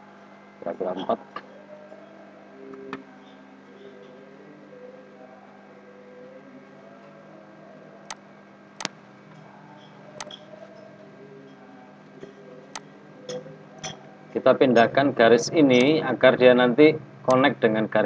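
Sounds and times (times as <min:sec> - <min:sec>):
electrical mains hum: 0:00.0 - 0:18.0.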